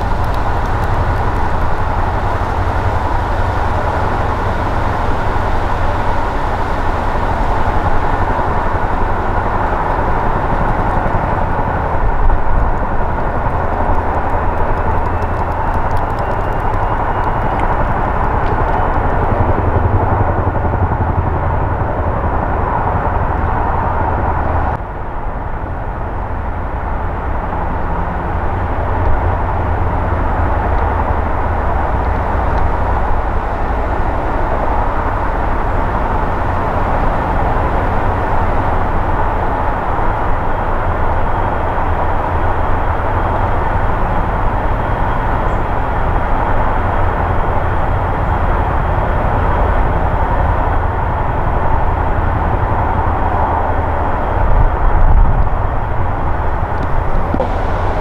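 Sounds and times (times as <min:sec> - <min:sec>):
helicopter engine whine and rotor thrum: 0:00.0 - 0:24.8.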